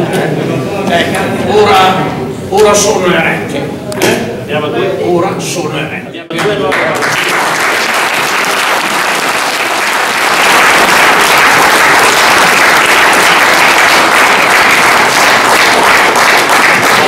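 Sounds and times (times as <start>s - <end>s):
audience applauding: 6.4s - 17.0s.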